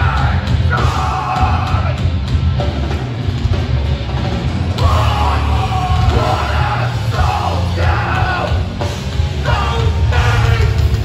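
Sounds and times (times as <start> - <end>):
shouted lead vocal: 0.0 - 2.2, 4.8 - 11.0
bass guitar: 0.0 - 11.0
distorted guitars: 0.0 - 11.0
pounding drums: 0.0 - 11.0.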